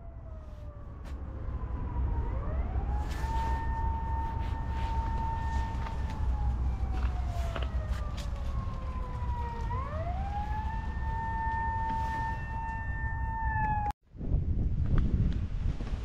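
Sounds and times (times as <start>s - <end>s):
siren wailing: 0.0s - 14.0s.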